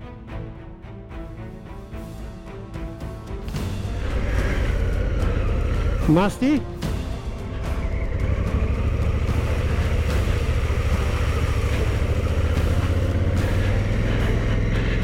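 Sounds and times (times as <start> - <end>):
tyres rolling through puddles: 3.4 - 15.0
motorcycle engine running: 3.6 - 15.0.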